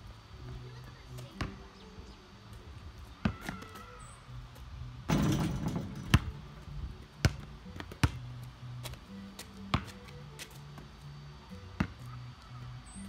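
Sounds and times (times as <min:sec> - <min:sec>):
basketball bouncing on asphalt: 0:01.4 - 0:01.8, 0:03.0 - 0:03.8, 0:05.1 - 0:10.9, 0:11.6 - 0:12.1
ball striking hoop and backboard: 0:05.1 - 0:08.3, 0:09.7 - 0:10.0, 0:11.8 - 0:12.0.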